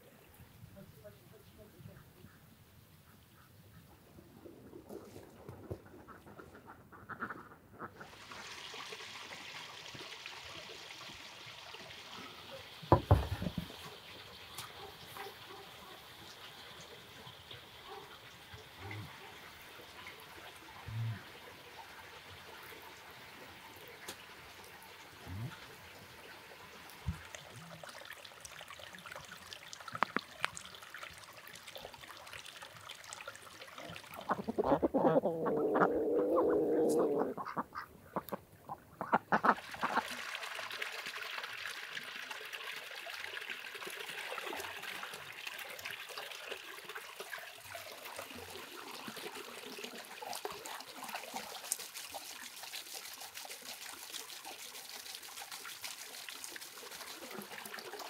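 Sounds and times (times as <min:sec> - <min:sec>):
trickle of running water: 0:04.1 - 0:06.6, 0:07.9 - 0:58.0
duck calls: 0:37.4 - 0:38.4, 0:39.0 - 0:40.0.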